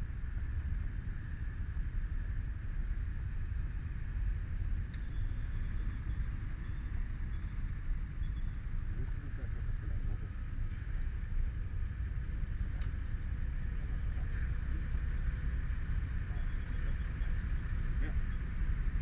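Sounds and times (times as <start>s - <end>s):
motorcycle engine rumbling: 0.0s - 19.0s.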